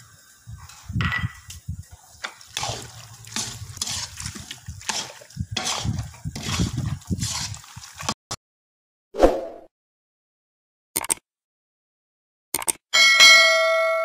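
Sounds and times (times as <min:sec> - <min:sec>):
metal spatula scraping pan: 0:02.2 - 0:08.2.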